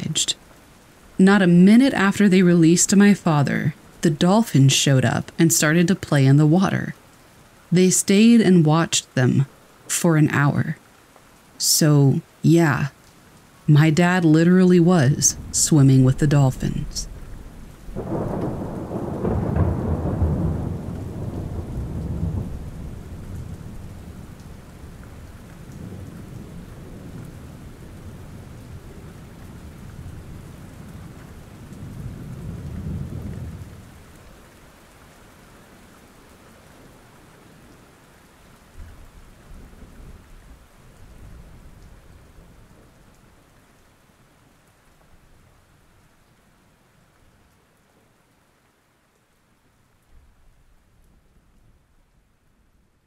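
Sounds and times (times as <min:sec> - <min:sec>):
steady rain: 0:00.0 - 0:53.0
rolling thunder: 0:17.0 - 0:34.2.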